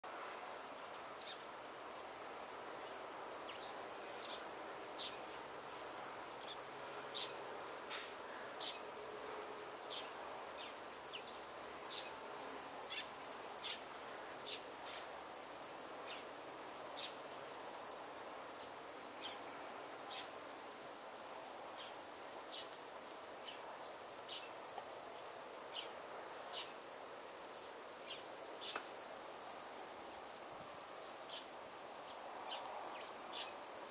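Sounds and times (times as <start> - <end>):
insects shrilling drone: 0.1 - 33.9
short insect chirps: 18.4 - 33.9
higher-pitched insect drone: 20.0 - 33.9.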